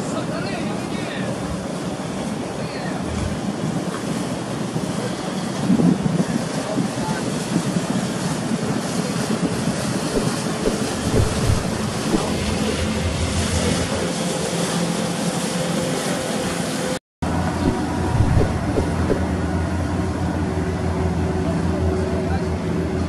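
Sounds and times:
boat engine drone: 0.0s - 23.0s
wind: 0.0s - 23.0s
water washing: 6.9s - 15.5s, 17.6s - 19.5s.

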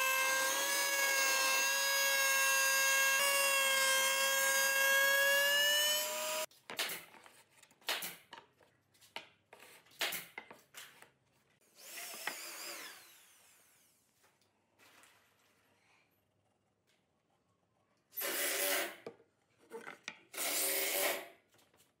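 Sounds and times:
router motor whining: 0.0s - 6.5s, 11.8s - 13.9s.

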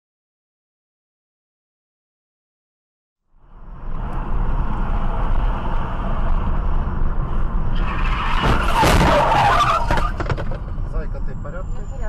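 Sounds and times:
car road and engine noise: 3.2s - 12.0s
tyres skidding: 3.5s - 12.0s
car crash crunching: 7.7s - 10.9s.

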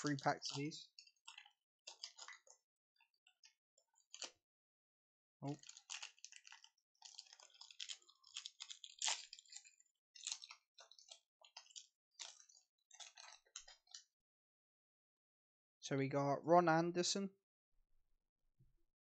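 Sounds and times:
foil wrapper crinkling and tearing: 0.0s - 4.4s, 5.4s - 14.1s.

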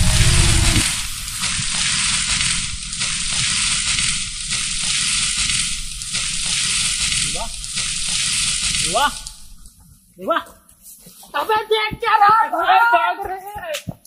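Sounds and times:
short rising tone: 0.0s - 1.3s
low rumble: 0.0s - 1.8s.

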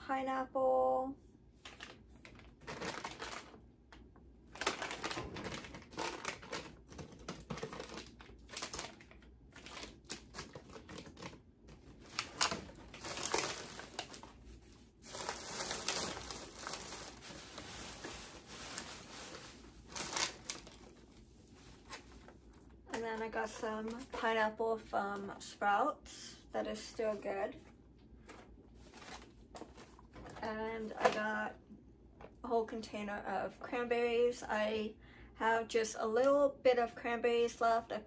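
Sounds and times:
plastic bags rustling and crinkling: 1.6s - 3.6s, 4.5s - 24.4s, 26.7s - 31.4s
packages clicking and knocking: 1.7s - 14.4s, 28.2s - 31.3s.

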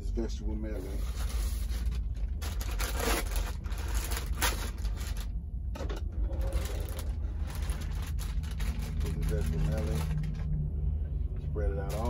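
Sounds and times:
steady low rumble: 0.0s - 12.0s
plastic bag crinkling: 1.1s - 5.3s, 6.4s - 10.5s.

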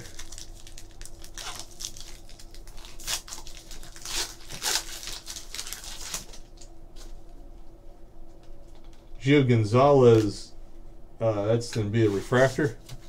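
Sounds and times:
foil wrapper tearing and crinkling: 0.0s - 6.6s.

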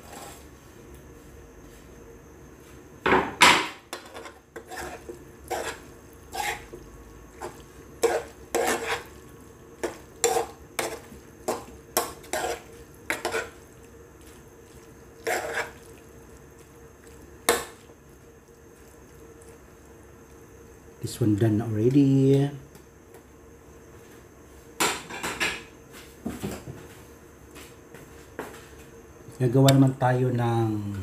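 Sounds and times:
spoon scraping a frying pan: 3.9s - 6.8s, 7.4s - 9.1s, 9.8s - 13.7s, 15.2s - 15.9s.

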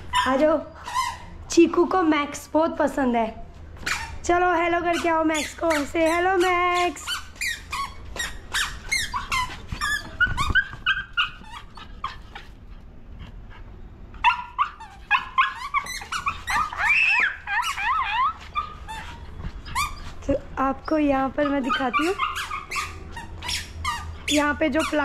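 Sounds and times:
dog whining and yelping: 0.0s - 1.5s, 3.8s - 4.3s, 4.9s - 12.8s, 14.1s - 25.0s.

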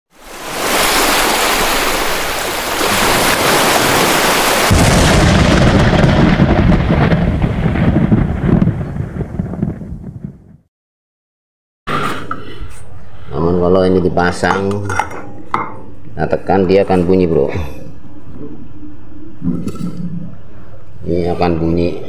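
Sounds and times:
rushing crackling fire: 0.5s - 10.6s
deep explosion rumble: 4.7s - 10.7s.

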